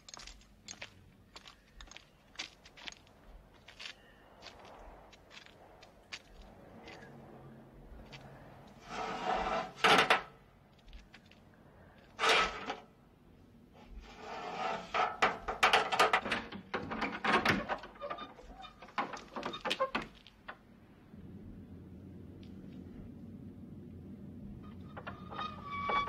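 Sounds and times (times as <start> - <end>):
wood and metal scraping: 8.7 - 10.4, 12.0 - 12.9, 13.8 - 20.8, 24.6 - 26.0
knocks and rattles: 14.9 - 20.8, 24.6 - 26.0.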